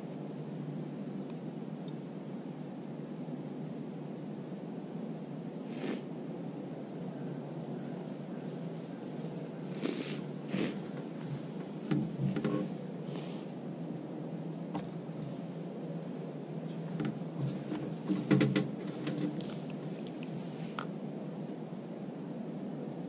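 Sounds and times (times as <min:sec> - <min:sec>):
steady low hiss: 0:00.0 - 0:23.0
small knocks: 0:11.0 - 0:12.7, 0:16.9 - 0:19.7.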